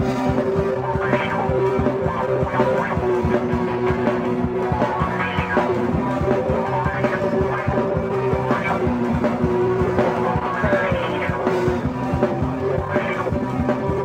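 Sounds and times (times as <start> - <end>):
alternative rock song: 0.0 - 14.0.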